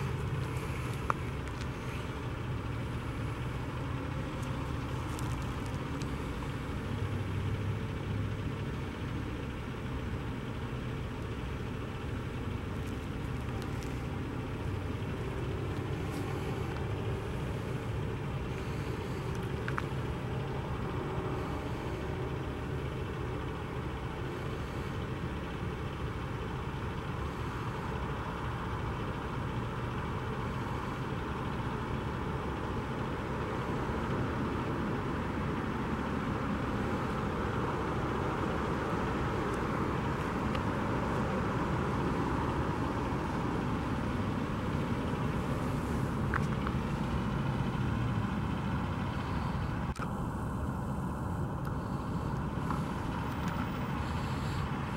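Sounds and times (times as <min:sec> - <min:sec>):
diesel engine idling: 0:00.0 - 0:54.9.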